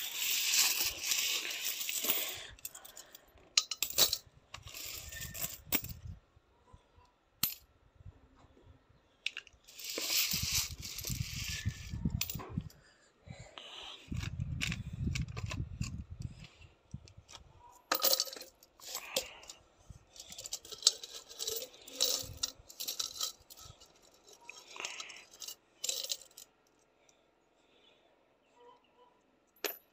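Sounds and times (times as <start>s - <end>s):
coins jingling and clinking: 0.0s - 6.0s, 9.7s - 12.4s, 17.9s - 19.6s, 20.2s - 26.5s.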